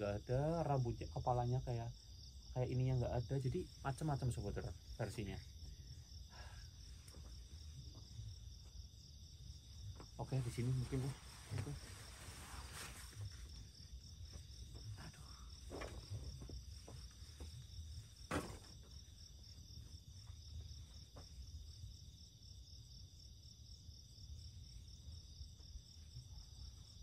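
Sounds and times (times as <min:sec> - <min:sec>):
crickets chirping: 0:00.0 - 0:27.0
light knocks and rustles: 0:09.8 - 0:19.2.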